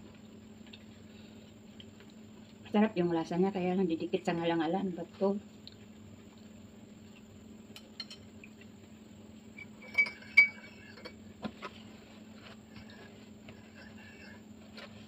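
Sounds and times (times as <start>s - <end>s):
metal spoon clinking against cup: 9.6s - 11.2s.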